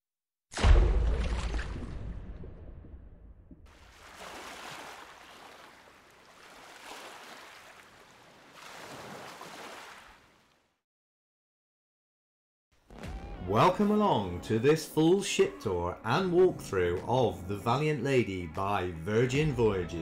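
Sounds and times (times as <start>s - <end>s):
sea waves washing: 3.7s - 10.5s.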